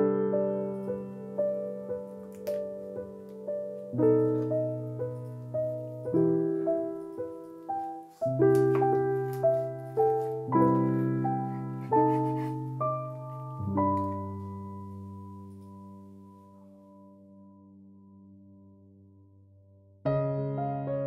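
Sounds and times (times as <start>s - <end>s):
gentle piano music: 0.0s - 21.0s.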